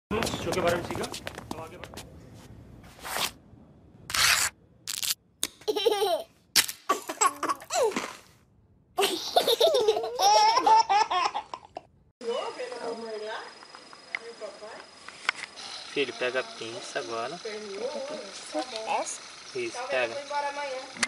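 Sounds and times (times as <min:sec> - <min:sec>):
babies laughing and giggling: 0:05.6 - 0:06.3, 0:06.9 - 0:08.0, 0:09.0 - 0:11.9.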